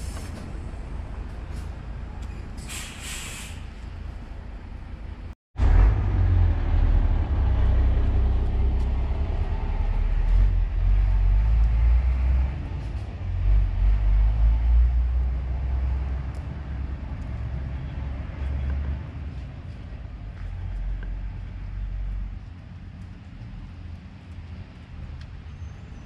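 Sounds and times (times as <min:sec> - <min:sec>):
outdoor hiss: 0:02.6 - 0:03.7
low rumble: 0:03.7 - 0:25.4.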